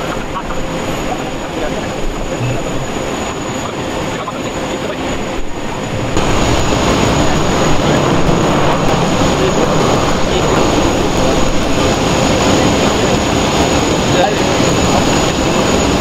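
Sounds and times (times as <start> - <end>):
high-pitched jet whine: 0.0 - 16.0
jet aircraft roar: 0.0 - 16.0.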